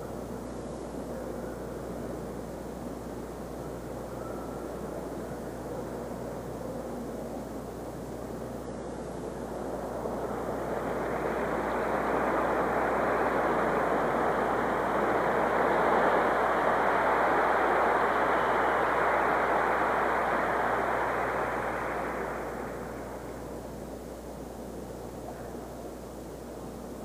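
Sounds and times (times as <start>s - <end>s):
crowd applauding and cheering: 9.7s - 23.6s.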